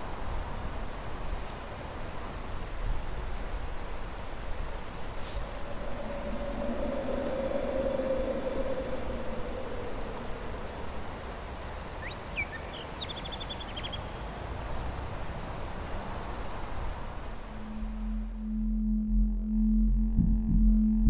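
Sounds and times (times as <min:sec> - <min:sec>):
insects chirping: 0:00.0 - 0:18.9
low held tone: 0:05.4 - 0:11.5, 0:17.5 - 0:21.0.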